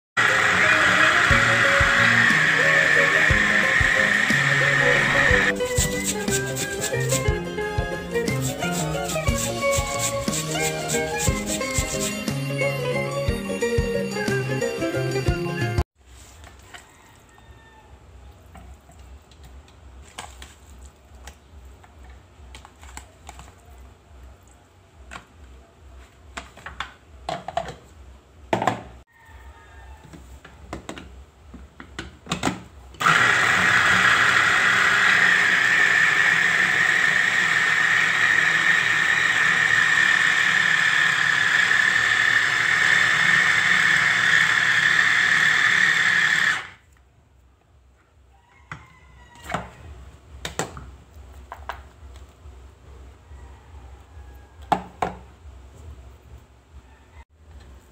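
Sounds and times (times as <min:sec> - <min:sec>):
food chopper motor whirring: 0:00.2 - 0:14.4, 0:33.0 - 0:46.8.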